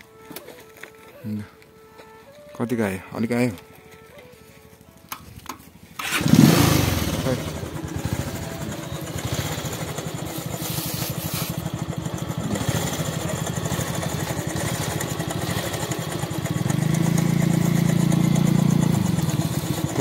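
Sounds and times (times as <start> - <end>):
motorcycle engine idling and revving: 5.0 - 20.0.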